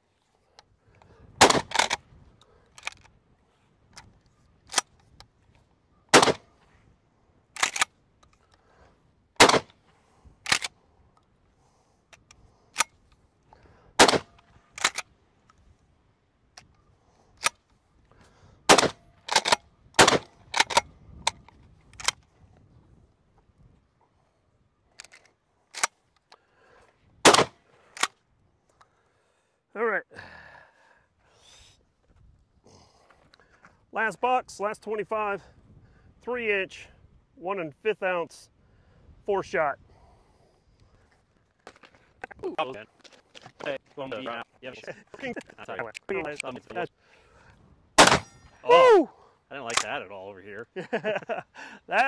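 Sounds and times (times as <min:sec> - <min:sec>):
shotgun blasts: 0:01.4 - 0:02.0, 0:06.1 - 0:06.5, 0:09.4 - 0:09.8, 0:14.0 - 0:14.9, 0:18.7 - 0:20.8, 0:27.2 - 0:27.6, 0:48.0 - 0:48.4
shotgun pump clacking: 0:07.6 - 0:08.6.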